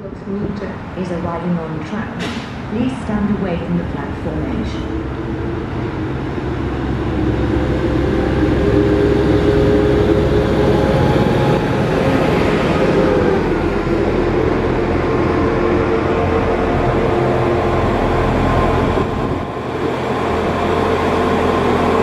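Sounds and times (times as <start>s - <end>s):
train engine: 0.0s - 22.0s
train wheels on rails: 1.8s - 3.5s.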